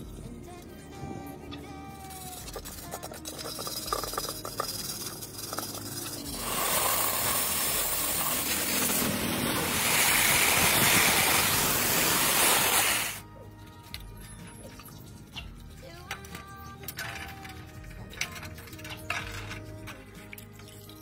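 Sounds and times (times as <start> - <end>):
pressure washer spraying water: 3.2 - 13.2.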